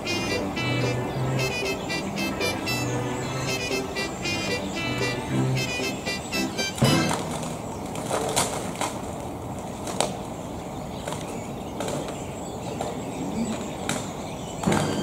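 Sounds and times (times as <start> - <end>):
outdoor background noise: 0.0 - 15.0
sharp clicks and cracks: 7.2 - 10.2.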